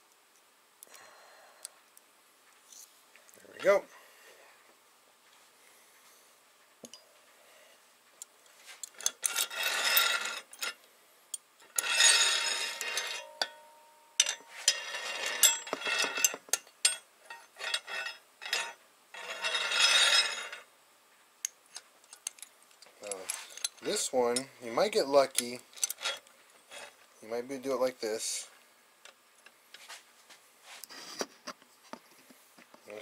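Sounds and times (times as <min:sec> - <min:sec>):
metal clinks and scraping: 0:08.4 - 0:10.8, 0:11.6 - 0:20.7, 0:21.7 - 0:24.6, 0:25.2 - 0:27.0
rattling metallic scrapes: 0:09.0 - 0:10.8, 0:11.6 - 0:20.7, 0:25.3 - 0:27.0.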